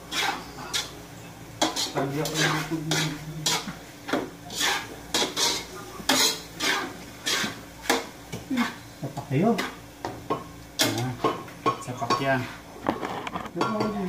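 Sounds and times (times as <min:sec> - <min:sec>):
spatula scraping a wok: 0:00.0 - 0:01.0, 0:01.6 - 0:09.0, 0:09.6 - 0:09.8.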